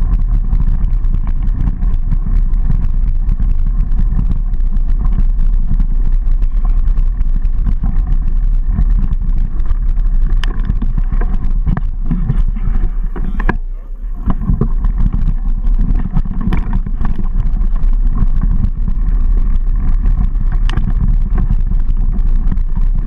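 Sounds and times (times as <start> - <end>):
bike rattling and clicking: 0.0 - 23.0
wind and vibration rumble: 0.0 - 23.0.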